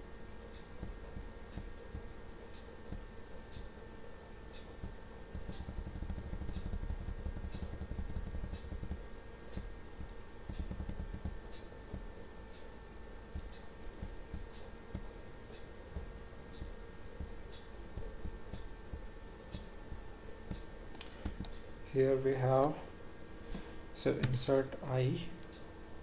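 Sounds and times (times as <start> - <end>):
faint electrical hum: 0.0 - 26.0
clock ticking: 4.5 - 12.7, 13.3 - 21.6.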